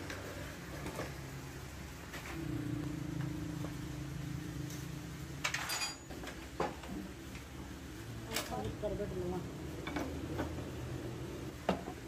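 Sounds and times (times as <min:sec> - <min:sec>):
motor humming: 0:02.4 - 0:05.6
tools clinking on metal: 0:05.4 - 0:06.1.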